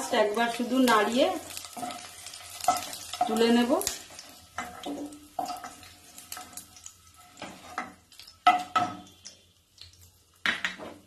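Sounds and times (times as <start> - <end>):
oil sizzling: 0.0 - 11.0
spatula knocking in a pan: 7.8 - 9.1.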